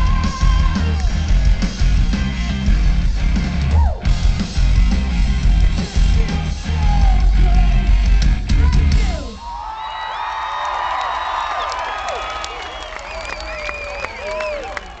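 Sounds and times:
crowd cheering and whistling: 0.0 - 1.8, 9.2 - 15.0
pounding drums: 0.0 - 9.4
live rock band: 0.0 - 9.6
yelled vocals: 0.0 - 9.7.

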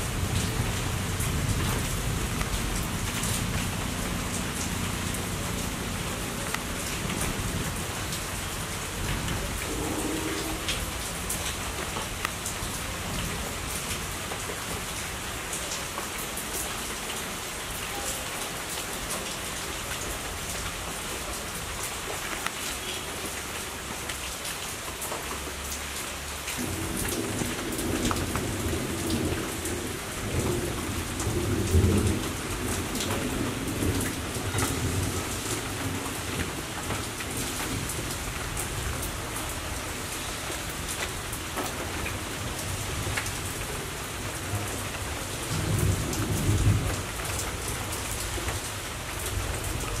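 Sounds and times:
rain pattering on leaves: 0.0 - 50.0
low thunder rumble: 8.9 - 11.4, 26.6 - 36.5.

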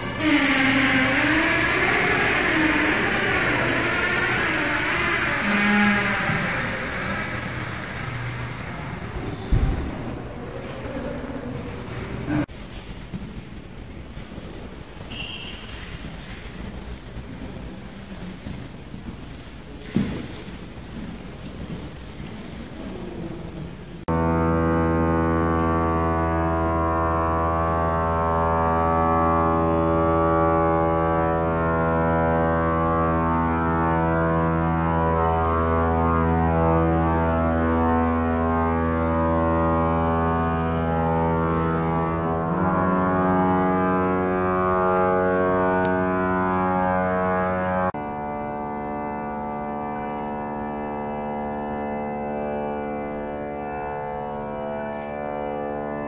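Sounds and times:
pipe organ chord: 0.0 - 12.5, 24.1 - 56.0.

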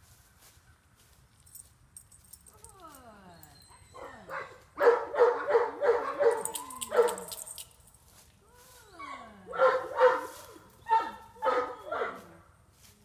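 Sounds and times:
dog barking: 4.0 - 7.3, 9.5 - 12.3.

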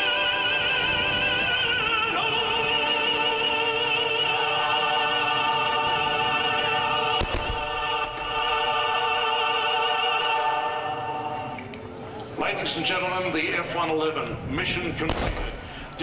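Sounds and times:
operatic singing: 0.0 - 11.8.

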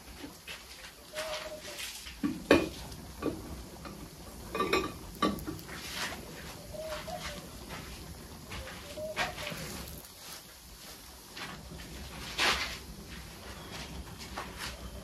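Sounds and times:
dove cooing: 0.8 - 10.5
pots knocking on concrete: 1.2 - 10.1.

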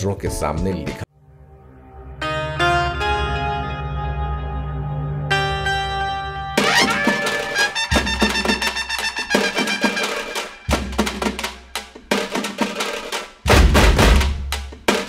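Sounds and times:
instrumental music with drums: 6.6 - 15.0.

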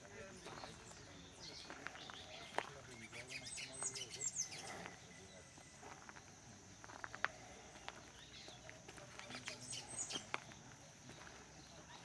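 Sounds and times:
bird chirps: 0.2 - 6.3, 8.0 - 12.0.

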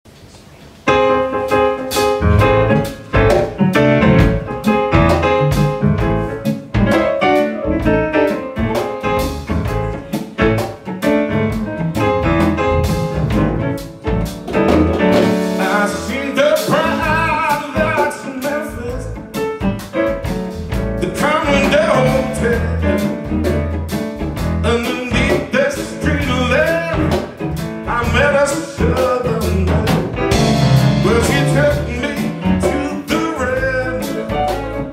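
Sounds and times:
band playing bluesy rock: 0.9 - 34.9
man singing: 15.5 - 19.4, 21.0 - 23.2, 24.6 - 34.9.

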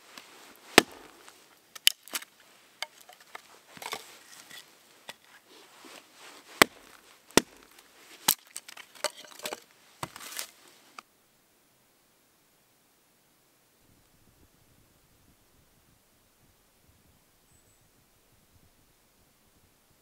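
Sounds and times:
wood scraping: 0.0 - 11.0
hatchet chopping wood: 0.7 - 4.0, 6.6 - 10.5.

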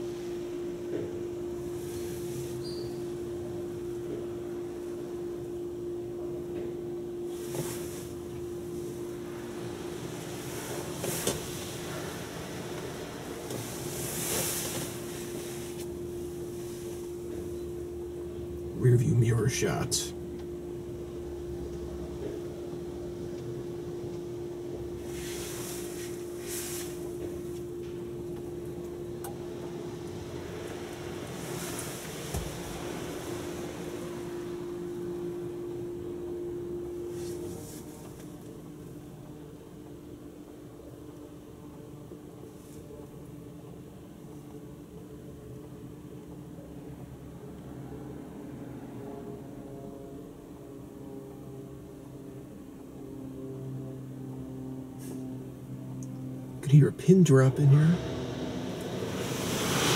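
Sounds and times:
steady hum: 0.0 - 59.9
water spray hissing on car windows: 7.3 - 8.3, 9.6 - 17.1, 25.0 - 27.5, 30.5 - 34.3, 58.9 - 59.9.

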